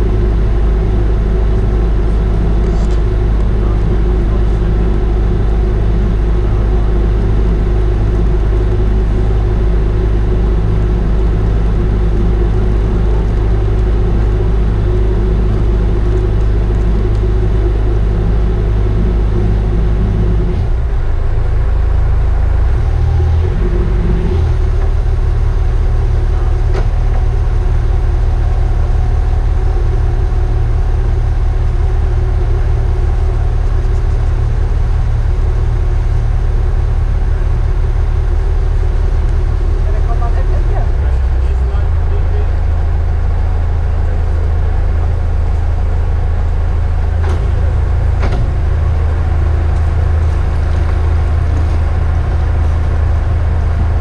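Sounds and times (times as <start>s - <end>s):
boat diesel engines running: 0.0s - 54.0s.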